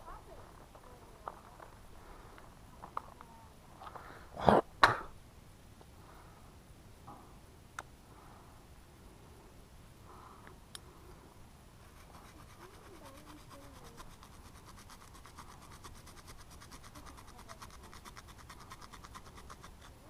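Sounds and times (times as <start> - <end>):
hand saw cutting a branch: 11.9 - 20.0.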